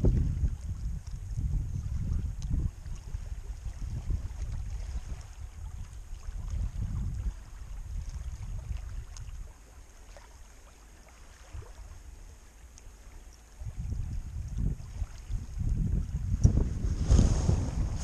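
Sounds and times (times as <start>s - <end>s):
wind buffeting microphone: 0.0s - 9.7s, 13.5s - 18.0s
faint small clicks: 2.3s - 3.0s, 9.1s - 9.4s, 12.6s - 13.6s.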